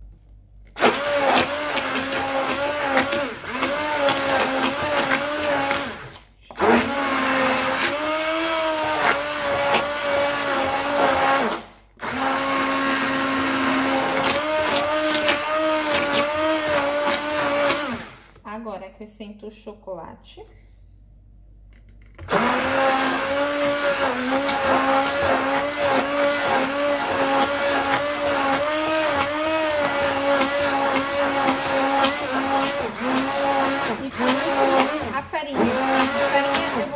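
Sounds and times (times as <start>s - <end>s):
immersion blender running in batter: 0.8s - 18.4s, 22.2s - 36.9s.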